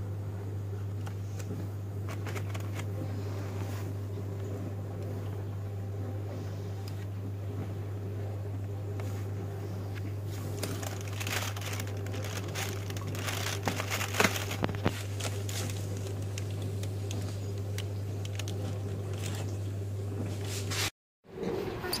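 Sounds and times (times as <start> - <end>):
steady low hum: 0.0 - 22.0
foil crinkling: 1.0 - 3.5, 10.3 - 19.7.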